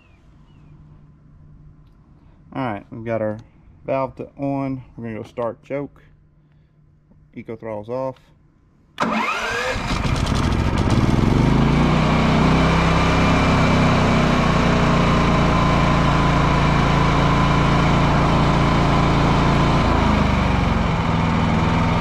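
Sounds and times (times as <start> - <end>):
generator engine running: 9.0 - 22.0.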